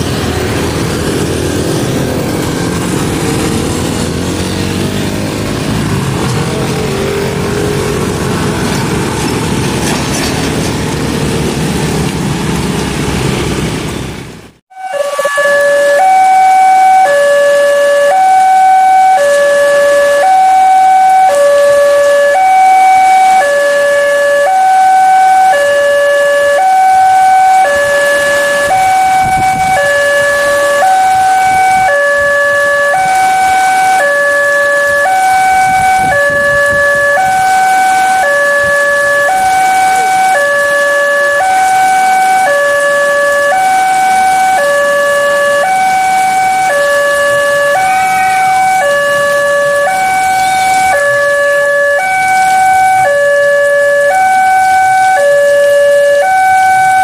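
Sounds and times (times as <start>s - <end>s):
level crossing two-tone alarm: 14.7s - 57.0s.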